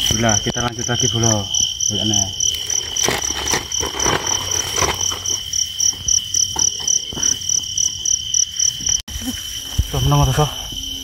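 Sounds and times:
night insects chirping: 0:00.0 - 0:11.0
rustling: 0:02.4 - 0:07.5.

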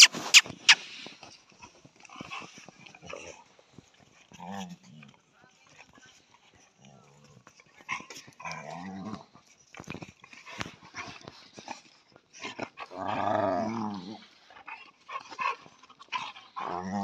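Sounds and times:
dogs growling: 0:12.4 - 0:17.0.

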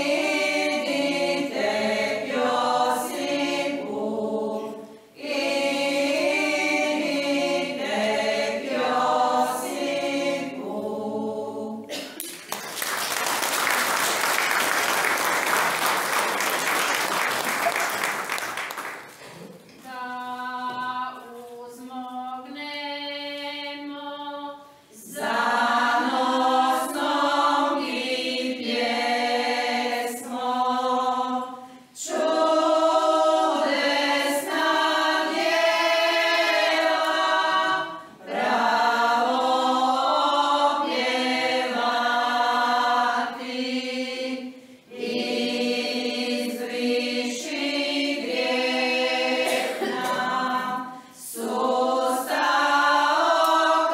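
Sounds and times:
women's choir singing a hymn: 0:00.0 - 0:12.1, 0:19.8 - 0:53.9.

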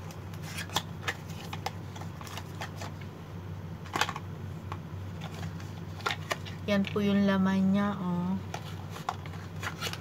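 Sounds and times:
packaging crinkling and rustling: 0:00.0 - 0:03.1, 0:05.1 - 0:07.0, 0:08.4 - 0:10.0.

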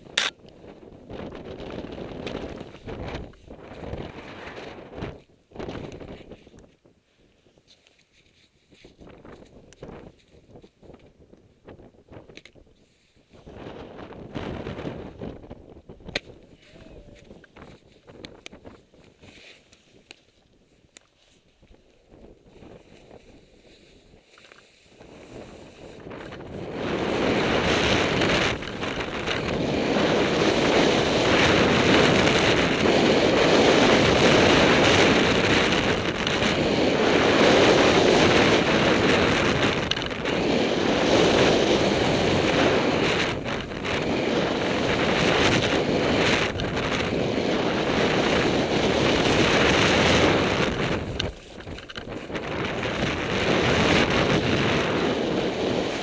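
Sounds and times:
wind rushing over microphone: 0:00.0 - 0:06.8, 0:08.8 - 0:20.1, 0:24.9 - 0:56.0
skis scraping over snow: 0:16.6 - 0:56.0.

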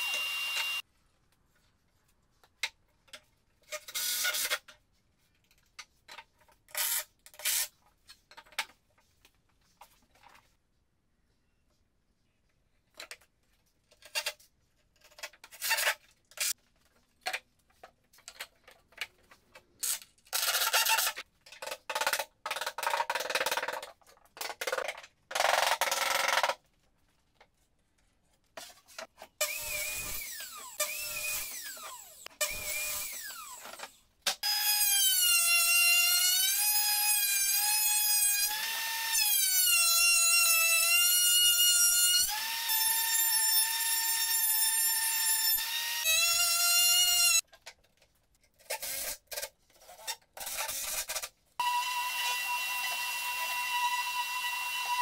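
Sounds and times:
electric drill whining: 0:00.0 - 0:00.8, 0:29.4 - 0:33.8, 0:51.6 - 0:55.0
power tool cutting bursts: 0:00.0 - 0:00.8, 0:29.4 - 0:33.6.

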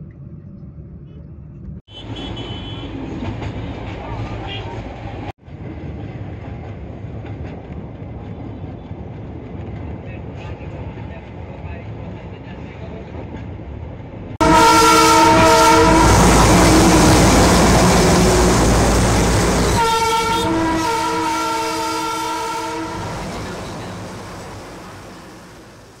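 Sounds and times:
train rumbling: 0:00.0 - 0:26.0
train horn blasts: 0:01.9 - 0:02.9, 0:14.4 - 0:25.2.

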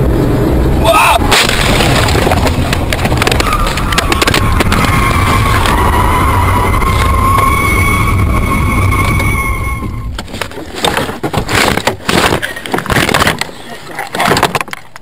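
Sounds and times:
low rumble: 0:00.0 - 0:10.8
car crash rattling and crunching: 0:01.1 - 0:15.0
high-pitched whine: 0:03.2 - 0:10.2.

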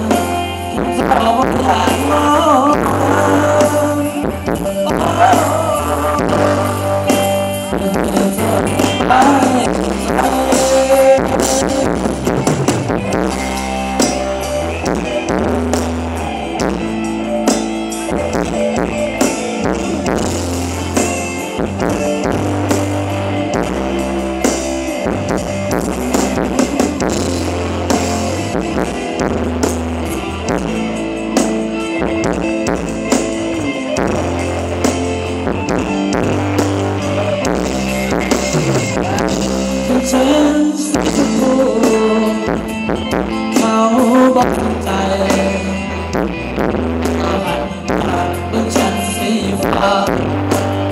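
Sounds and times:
bass guitar: 0:00.0 - 0:50.9
guitar: 0:00.0 - 0:50.9
drum kit dance beat: 0:04.2 - 0:39.9.

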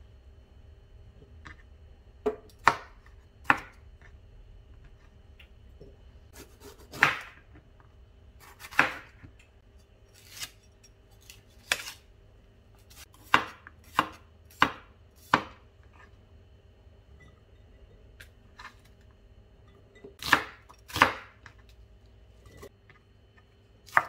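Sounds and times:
knife chopping on wooden board: 0:06.3 - 0:07.5, 0:08.4 - 0:09.4, 0:12.8 - 0:15.6, 0:20.2 - 0:21.5.

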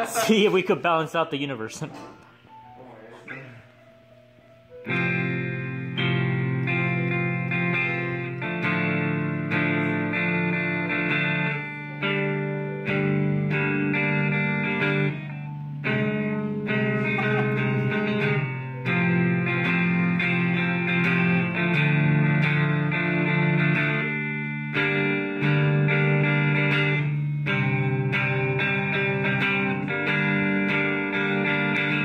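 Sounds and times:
electric guitar through amp: 0:04.7 - 0:32.0.

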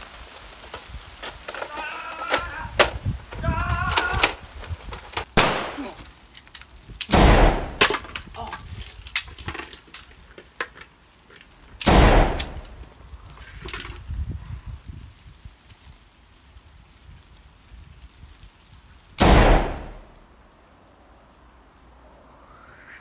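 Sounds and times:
heavy gunshot blasts: 0:05.4 - 0:05.9, 0:07.1 - 0:07.9, 0:11.8 - 0:12.7, 0:19.2 - 0:20.1
sharp gunshot crack: 0:05.4 - 0:06.0, 0:07.1 - 0:08.0, 0:11.8 - 0:12.7, 0:19.2 - 0:20.1.

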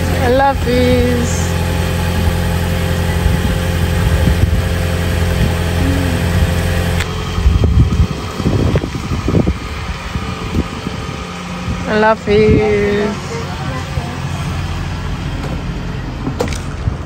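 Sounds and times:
car engine idling hum: 0:00.0 - 0:17.0
car moving off rumbling: 0:00.0 - 0:17.0.

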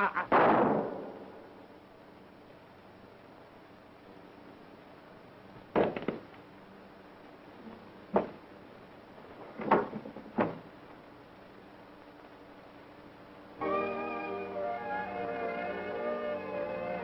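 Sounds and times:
heavy knocks and thumps: 0:05.6 - 0:06.3, 0:08.1 - 0:08.4, 0:09.5 - 0:10.7
rattle of small knocks: 0:08.1 - 0:08.4, 0:09.4 - 0:10.8
old film hiss: 0:10.6 - 0:17.0.

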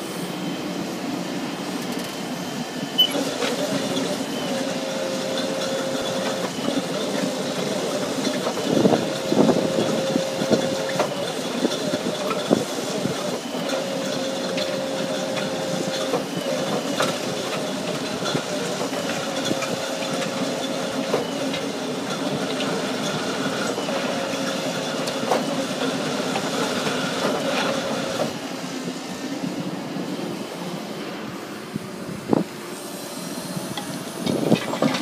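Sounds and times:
excavator engine running: 0:00.0 - 0:35.0.

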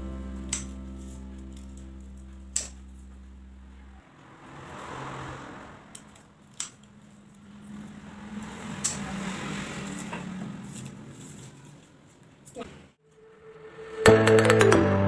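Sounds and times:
low steady hum: 0:00.0 - 0:04.1.

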